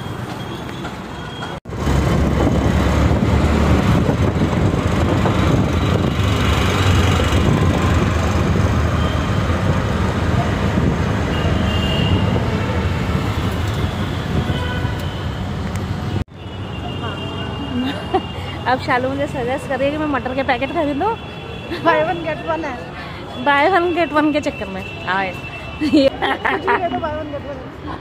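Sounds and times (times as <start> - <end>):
road noise: 0.0 - 28.0
traffic noise: 0.0 - 28.0.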